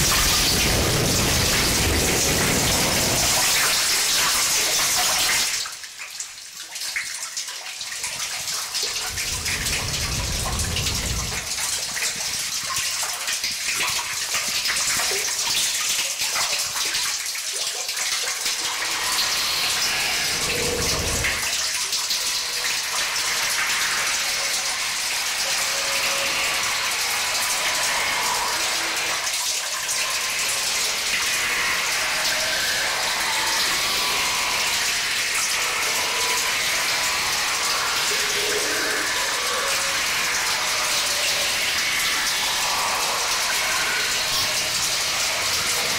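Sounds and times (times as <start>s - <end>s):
short low rumble: 9.1s - 11.6s
hissing static noise music: 30.2s - 45.9s.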